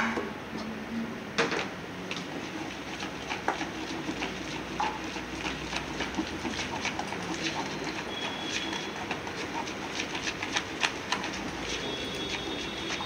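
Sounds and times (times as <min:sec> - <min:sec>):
batter stirred in plastic bowl: 0:02.0 - 0:13.0.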